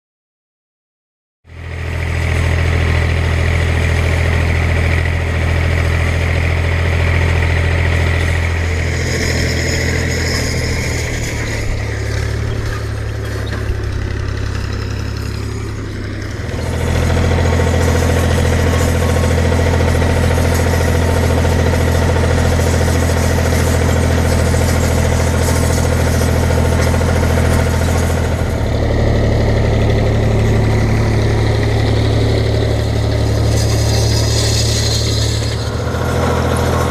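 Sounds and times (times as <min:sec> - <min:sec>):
tractor diesel engine running: 0:01.5 - 0:36.9.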